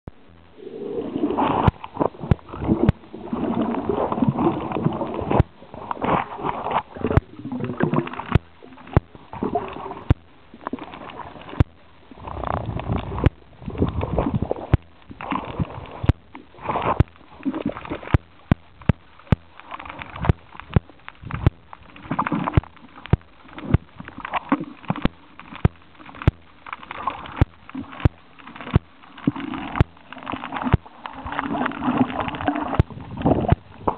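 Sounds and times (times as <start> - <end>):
muffled underwater gurgling: 0.1 - 33.9
sharp clicks: 7.0 - 33.9.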